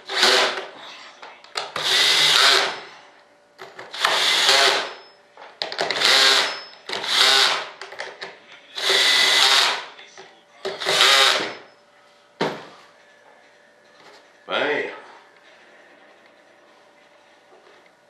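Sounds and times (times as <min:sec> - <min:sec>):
cordless drill whining: 0:00.0 - 0:00.6, 0:01.8 - 0:02.9, 0:03.9 - 0:05.0, 0:05.9 - 0:07.7, 0:08.8 - 0:09.8, 0:10.8 - 0:11.6.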